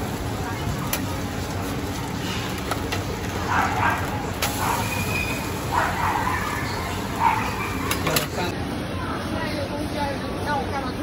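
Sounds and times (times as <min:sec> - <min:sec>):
omelette sizzling on griddle: 0:00.0 - 0:07.9.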